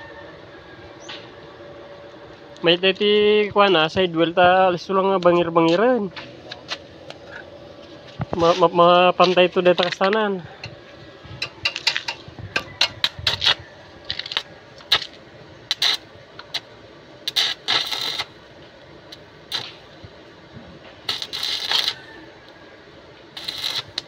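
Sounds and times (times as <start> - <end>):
welding arc crackling and hissing: 2.6 - 24.0
electrode striking arc clicks: 11.3 - 18.4, 19.1 - 20.2, 20.9 - 22.0, 23.4 - 24.0.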